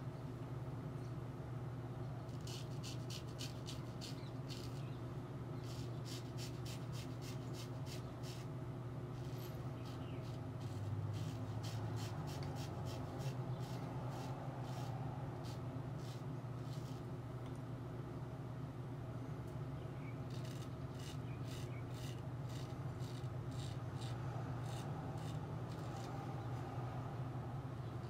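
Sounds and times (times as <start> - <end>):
steady low hum: 0.0 - 28.0
razor scraping stubble: 2.3 - 5.0, 5.6 - 8.5, 9.2 - 17.1, 20.3 - 26.5.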